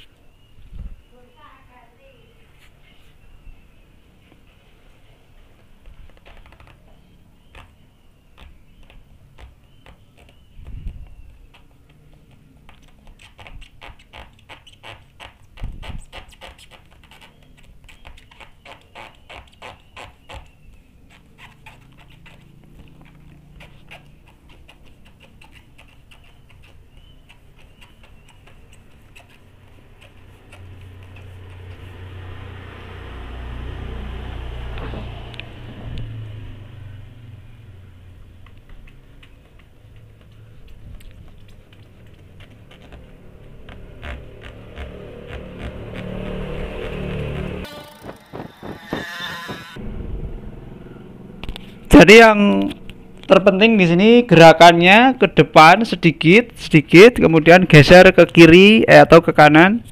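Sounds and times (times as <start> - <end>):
squeegee rubbing on glass: 12.6 - 32.0, 41.4 - 49.8
low rumble: 44.3 - 52.0
low thump: 49.8 - 50.9.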